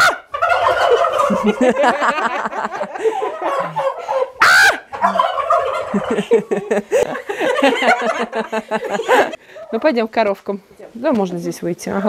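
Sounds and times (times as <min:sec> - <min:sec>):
turkeys gobbling: 0:00.0 - 0:06.8.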